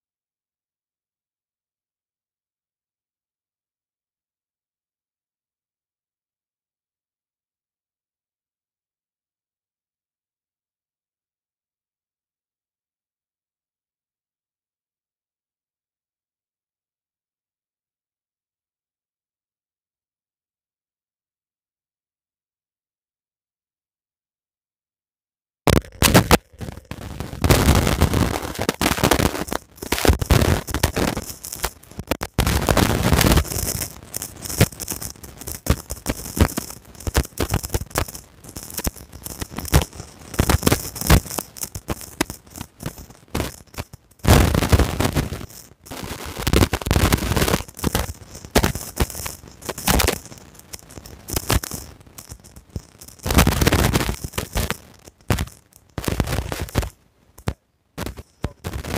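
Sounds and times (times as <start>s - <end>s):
loud crackling and popping: 25.7s - 58.9s.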